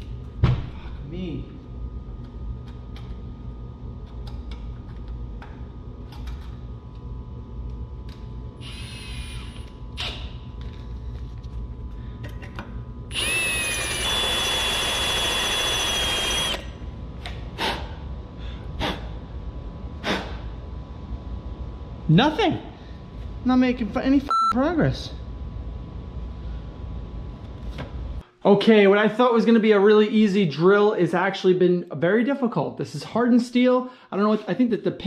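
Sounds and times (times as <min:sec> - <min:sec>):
power drill whining: 0:08.6 - 0:09.7, 0:13.1 - 0:16.6.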